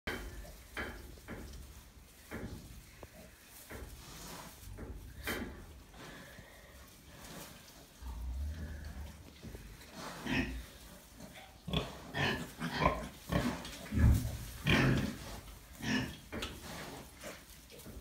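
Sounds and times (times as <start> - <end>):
pigs grunting: 8.0 - 17.4.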